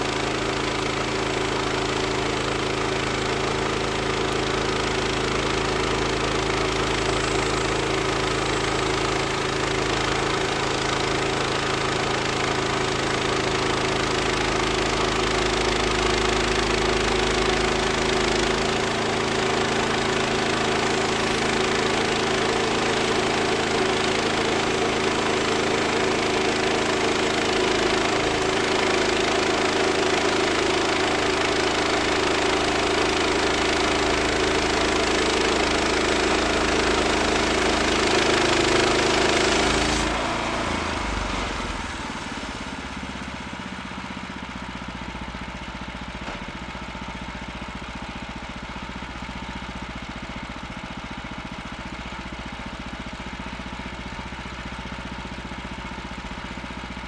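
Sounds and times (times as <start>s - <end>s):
gas engine running under load: 0.0s - 57.0s
band blade cutting log: 37.9s - 40.7s.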